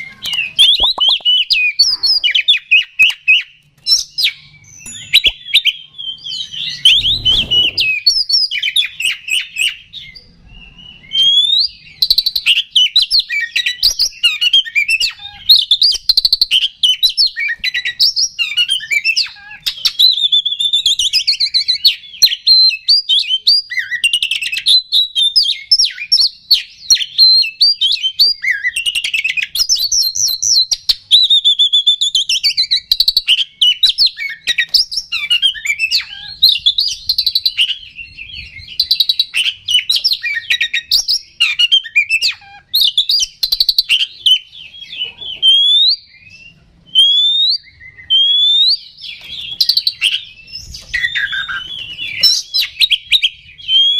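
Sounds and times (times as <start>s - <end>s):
bird singing whistles and chatter: 0.0s - 53.9s.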